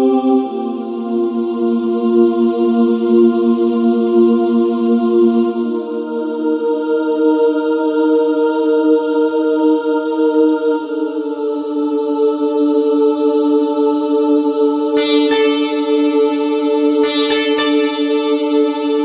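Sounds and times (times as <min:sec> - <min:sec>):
bright struck note: 0:15.0 - 0:19.0
sustained synthesizer chords: 0:15.0 - 0:19.0.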